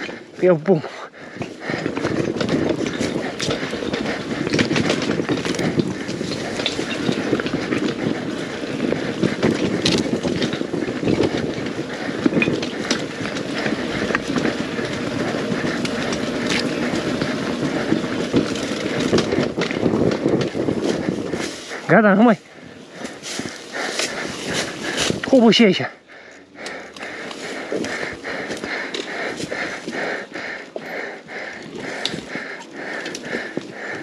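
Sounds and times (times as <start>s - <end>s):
two-stroke motorcycle engine running: 0.0s - 21.5s
engine knocks and clatter: 0.0s - 34.0s.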